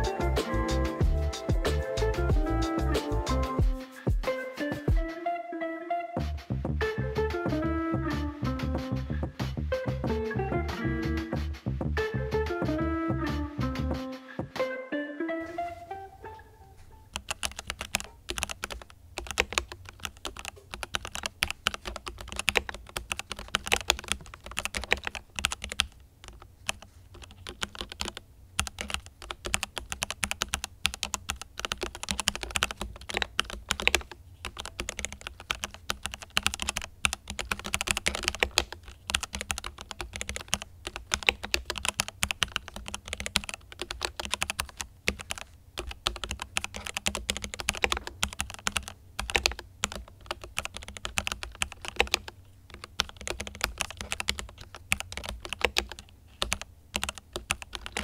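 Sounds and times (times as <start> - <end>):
mechanical keyboard key clacks: 17.2 - 58.0.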